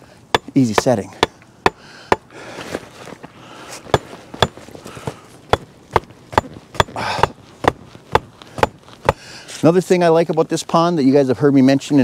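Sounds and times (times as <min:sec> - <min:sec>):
hatchet knocking on wooden stake: 0:00.3 - 0:02.3, 0:05.5 - 0:09.2.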